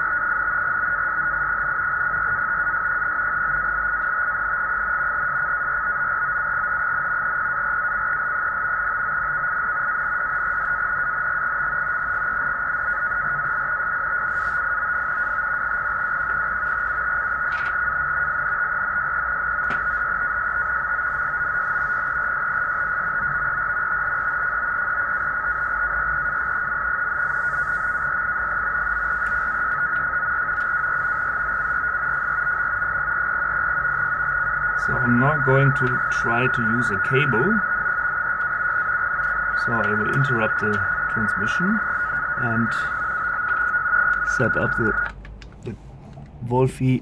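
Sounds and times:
high-pitched data tone: 0:00.0 - 0:45.8.

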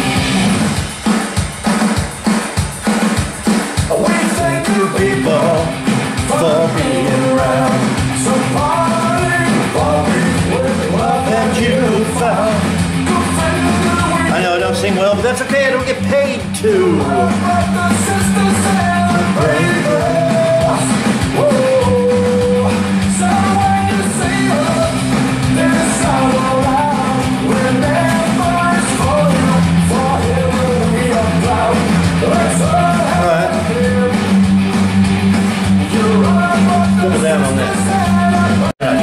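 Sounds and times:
rock song with singing: 0:00.0 - 0:39.0.

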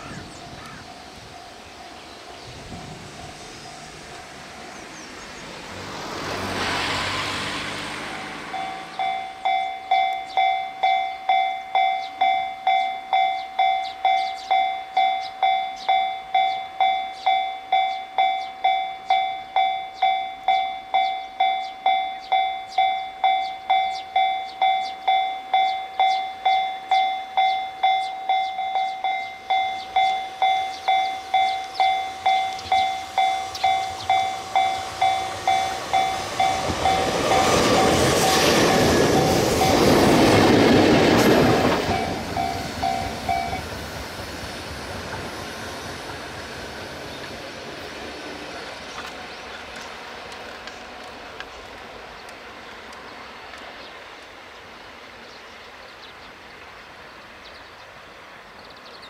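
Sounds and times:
level crossing warning bell: 0:00.0 - 0:05.1, 0:06.6 - 0:43.8
train running noise: 0:00.0 - 0:59.0.

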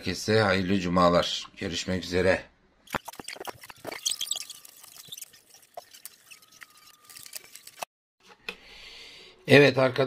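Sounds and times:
screwdriver clicks and scrapes: 0:03.0 - 0:07.9.

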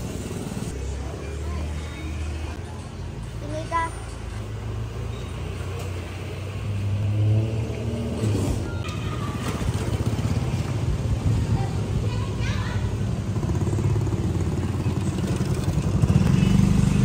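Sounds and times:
vehicle engine running: 0:13.2 - 0:17.0.

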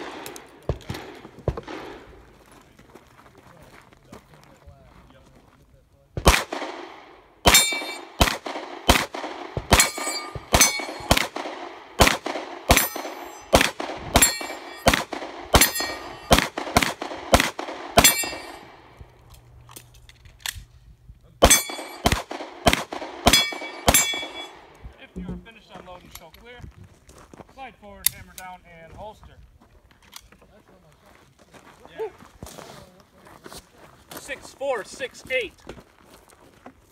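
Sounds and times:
rapid pistol fire: 0:06.2 - 0:18.5, 0:21.4 - 0:24.4
steel targets clanging: 0:07.5 - 0:08.2, 0:09.7 - 0:11.3, 0:12.7 - 0:13.6, 0:14.2 - 0:15.0, 0:15.6 - 0:16.4, 0:18.0 - 0:18.8, 0:21.4 - 0:22.3, 0:23.3 - 0:25.7.

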